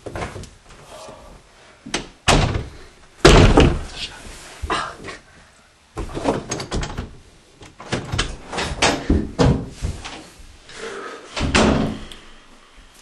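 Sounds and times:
bangs on wooden door: 2.2 - 3.9.

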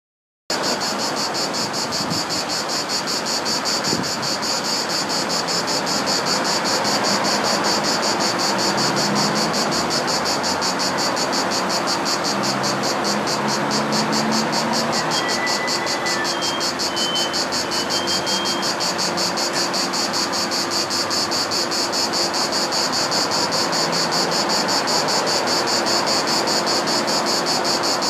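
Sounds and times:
cicada singing: 0.5 - 28.0
background noise rush: 0.6 - 28.0.

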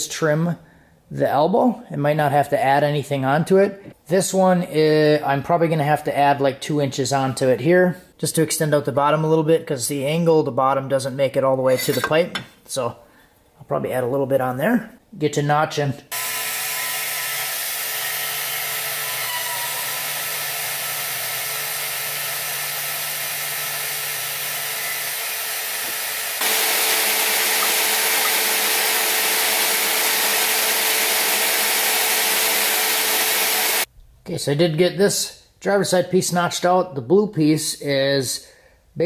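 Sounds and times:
band saw cutting steel: 16.1 - 33.9.

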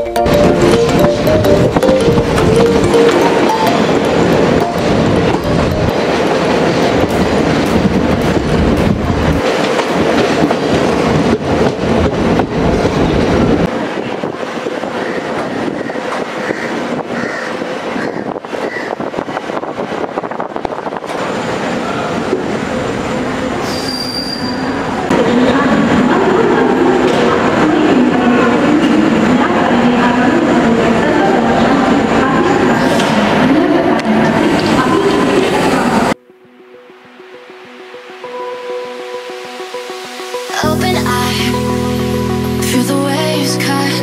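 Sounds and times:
train wheels clattering on rails: 0.3 - 22.5
train wheels squealing: 23.6 - 24.8.

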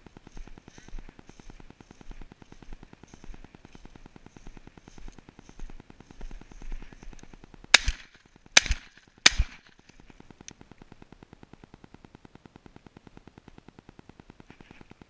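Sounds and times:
shotgun shots: 7.7 - 9.7.

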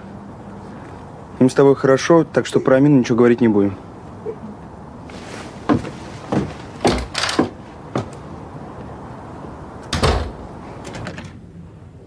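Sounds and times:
rustles: 4.4 - 8.2.

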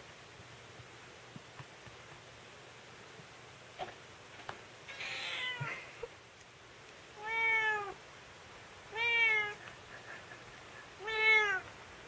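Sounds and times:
cat meowing: 4.9 - 5.8, 7.2 - 8.0, 8.9 - 9.6, 11.0 - 11.7
cat rough cry: 7.2 - 8.0, 8.9 - 9.6, 11.0 - 11.6.

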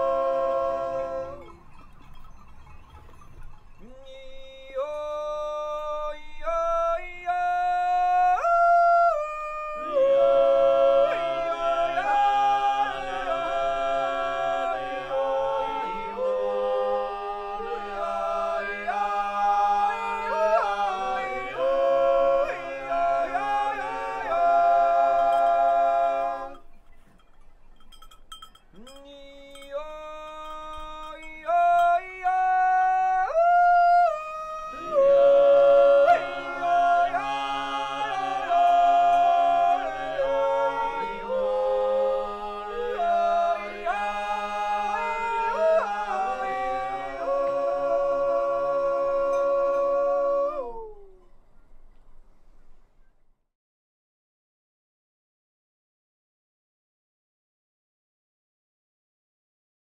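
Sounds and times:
man yodeling: 0.0 - 1.7, 3.8 - 26.6, 28.7 - 51.4
male choir sustained chords: 0.0 - 1.8, 3.8 - 26.7, 28.9 - 50.9.

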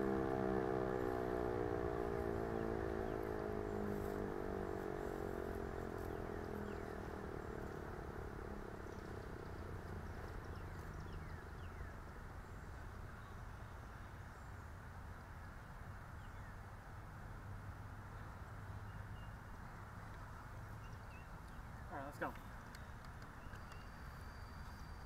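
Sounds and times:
warning siren winding down: 0.0 - 11.5.

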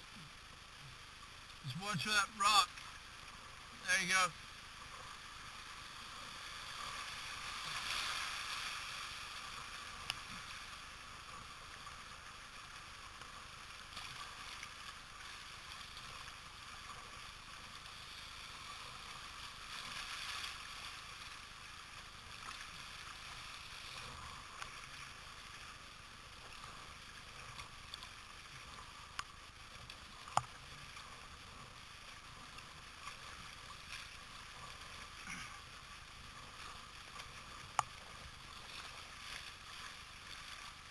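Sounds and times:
whitewater rushing: 1.6 - 2.8, 3.8 - 4.3.

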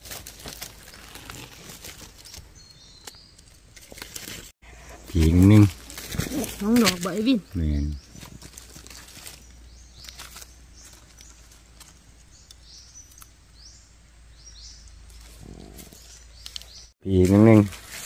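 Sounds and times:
bird chirping: 2.2 - 3.7, 4.8 - 17.6.

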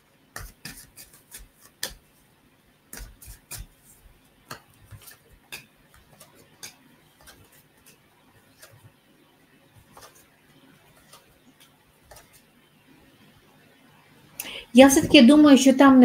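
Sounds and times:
cards being shuffled: 0.4 - 2.0, 2.9 - 9.0, 9.8 - 12.5.

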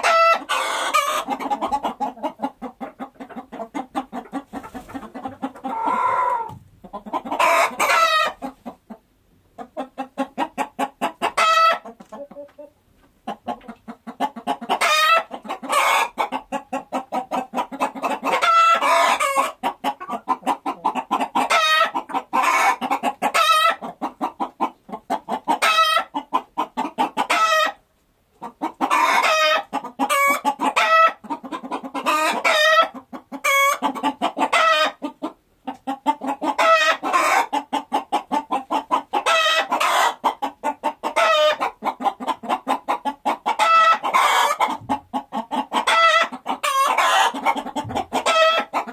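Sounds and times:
high-pitched chicken calls: 0.0 - 8.8, 9.7 - 27.8, 28.4 - 48.9
chickens clucking: 0.0 - 48.9.

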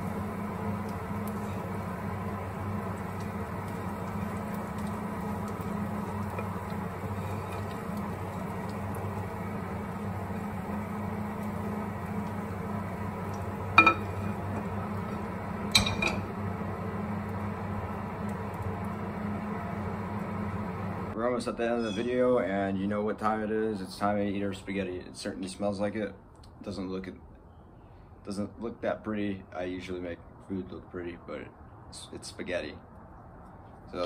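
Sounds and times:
steady low hum: 0.0 - 23.5.

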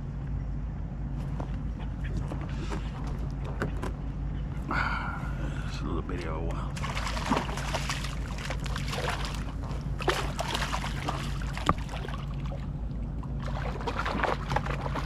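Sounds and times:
water sloshing: 5.3 - 15.0
fish splashing and thrashing: 6.7 - 15.0.

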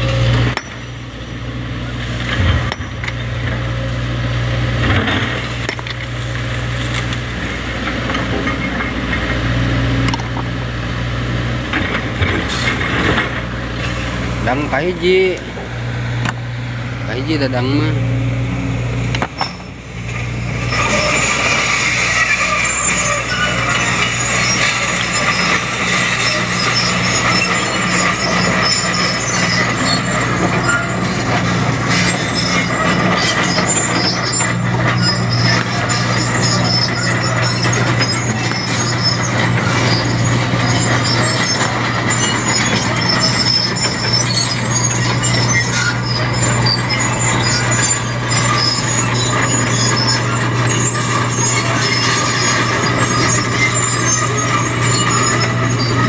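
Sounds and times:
excavator diesel engine humming: 0.0 - 56.0.

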